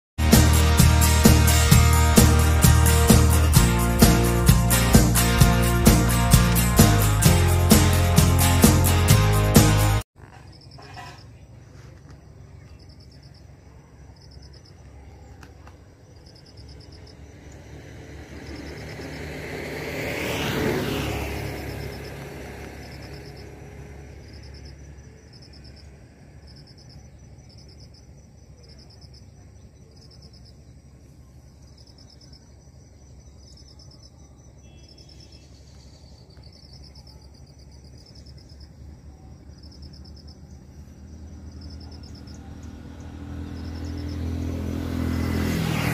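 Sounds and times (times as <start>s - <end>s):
insect chirping in high pulses: 16.1s - 29.3s, 29.9s - 45.5s
vehicle passing: 16.5s - 26.7s, 38.7s - 45.9s.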